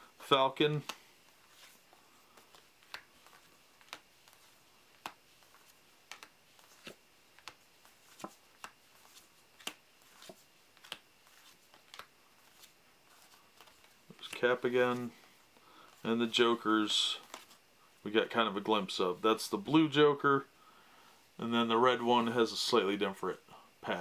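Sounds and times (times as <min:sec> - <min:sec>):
playing cards sliding ticks: 0:00.7 - 0:16.0.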